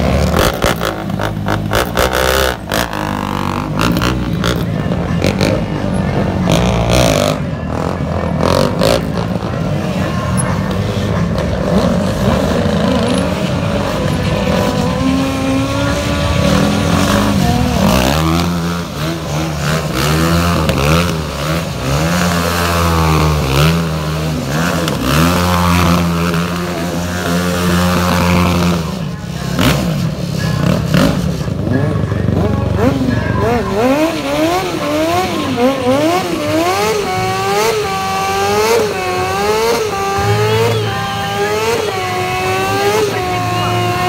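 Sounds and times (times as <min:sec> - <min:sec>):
quad bike engine revving: 0:00.0 - 0:44.0
small motorbike engine revving: 0:32.8 - 0:44.0.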